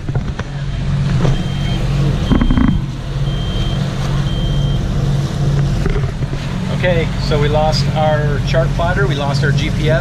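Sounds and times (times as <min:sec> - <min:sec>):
boat engine drone: 0:00.0 - 0:10.0
electronic alarm beeping: 0:01.3 - 0:04.9
short thump: 0:02.3 - 0:02.9.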